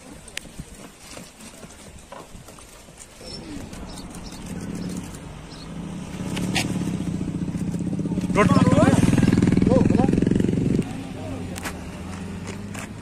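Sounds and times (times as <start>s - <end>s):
vehicle engine humming: 2.7s - 13.0s.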